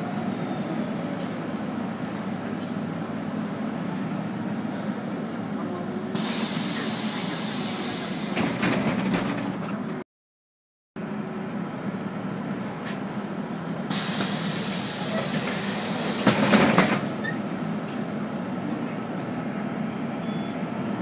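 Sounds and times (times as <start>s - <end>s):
bus engine rumbling: 0.0s - 10.0s, 11.0s - 21.0s
compressed air hiss: 6.2s - 8.7s, 13.9s - 17.3s
clunks: 8.3s - 10.0s.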